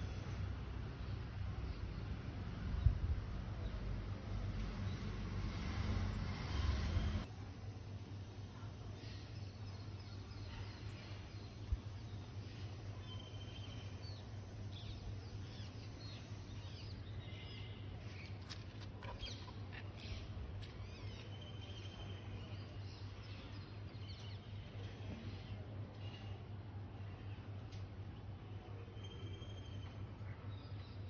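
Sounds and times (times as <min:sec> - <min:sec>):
steady low hum: 0:00.0 - 0:29.0
small birds chirping: 0:08.5 - 0:26.4.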